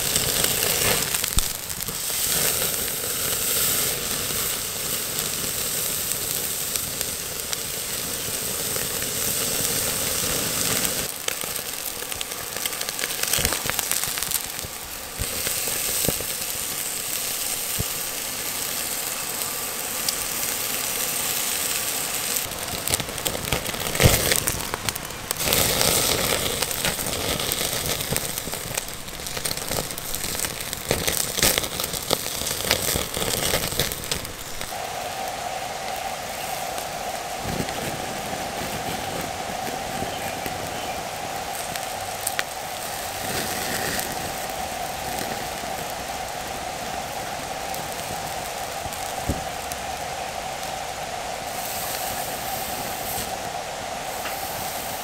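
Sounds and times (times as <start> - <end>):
sharp crack: 0.0 - 4.6, 22.3 - 46.5
fat crackling and popping: 0.0 - 55.0
steak sizzling on grill: 0.0 - 55.0.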